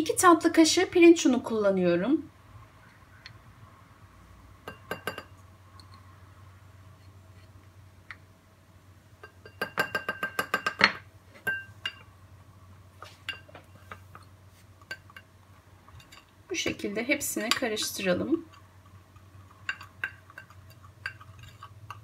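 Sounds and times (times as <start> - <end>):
spoon clinking against bowls: 4.6 - 6.0, 9.2 - 12.1, 13.2 - 15.3, 15.9 - 16.3, 19.5 - 22.0.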